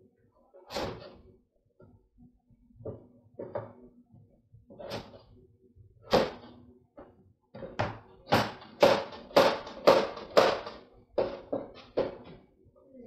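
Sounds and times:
knife chopping on cutting board: 7.7 - 12.2.

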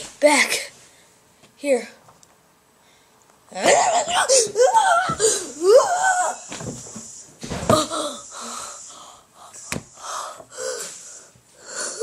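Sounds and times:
boy squealing: 3.6 - 6.5
breathy gasps: 7.8 - 12.0.

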